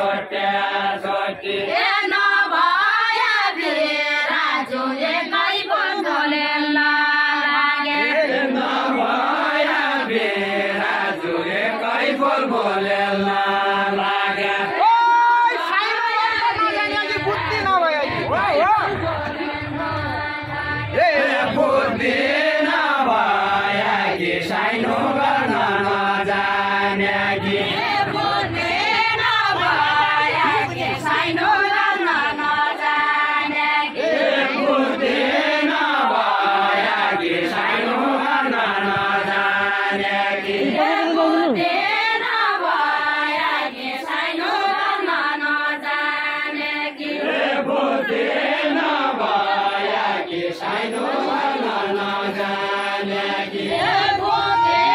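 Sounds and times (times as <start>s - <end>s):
voices singing folk melody: 0.0s - 54.9s.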